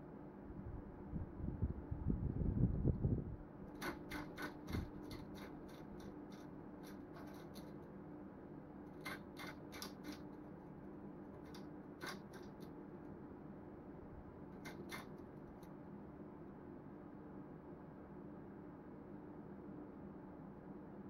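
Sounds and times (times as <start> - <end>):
faint steady hum: 0.0 - 21.0
bird clicks and scratches on perch: 3.7 - 7.9, 8.9 - 10.4, 11.4 - 12.8, 14.5 - 15.7.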